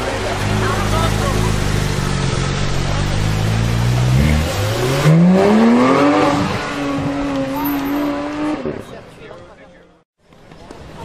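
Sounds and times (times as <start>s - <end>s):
sports car engine accelerating: 0.1s - 8.8s.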